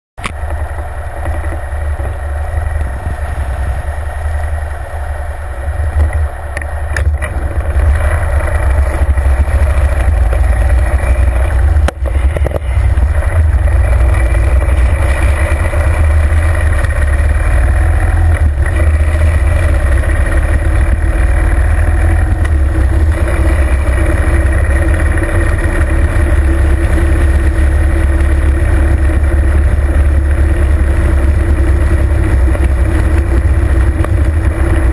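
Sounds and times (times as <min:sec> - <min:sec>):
motorcycle engine rumbling: 0:00.2 - 0:34.9
wind on microphone: 0:00.4 - 0:26.1.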